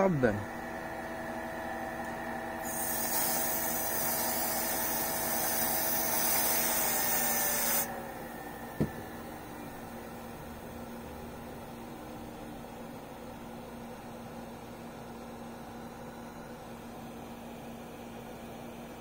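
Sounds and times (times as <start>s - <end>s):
electric pump whine: 0.0s - 14.1s
loud spray hiss: 2.6s - 7.9s.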